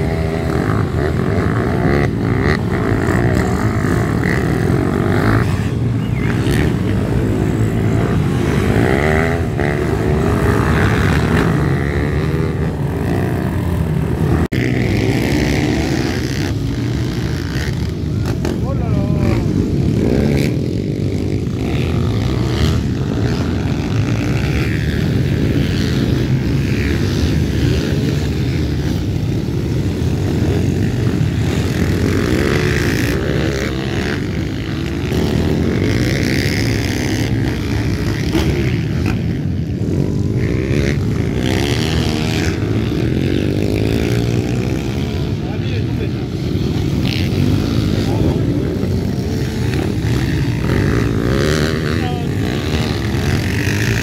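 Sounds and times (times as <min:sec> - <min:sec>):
pit bike engines revving: 0:00.0 - 0:54.0.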